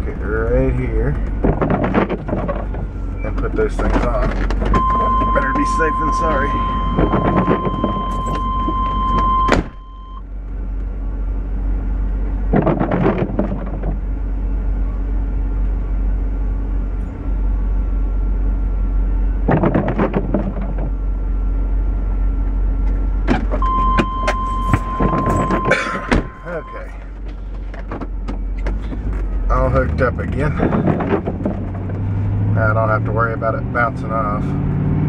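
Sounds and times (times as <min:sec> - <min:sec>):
engine idling: 0:00.0 - 0:34.5
car warning chime: 0:04.7 - 0:10.2, 0:23.6 - 0:27.0
car door shutting: 0:06.8 - 0:09.9, 0:23.2 - 0:29.2
muffled chain clanking: 0:23.4 - 0:32.4.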